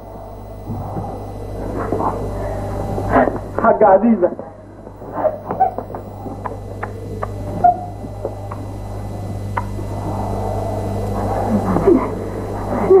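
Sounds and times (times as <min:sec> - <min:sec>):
low electrical hum: 0:00.0 - 0:13.0
faint clicks: 0:09.3 - 0:09.7.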